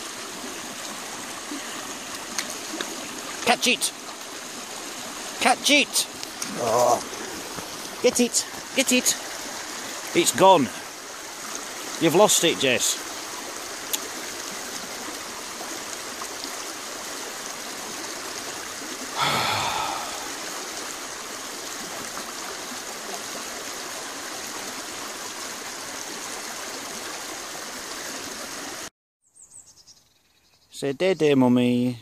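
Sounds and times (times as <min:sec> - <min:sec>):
stream splashing over stones: 0:00.0 - 0:28.9.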